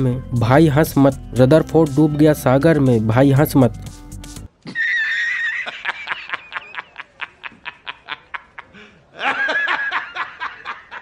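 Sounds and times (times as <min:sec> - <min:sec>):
man laughing in high pitch: 0:04.6 - 0:11.0.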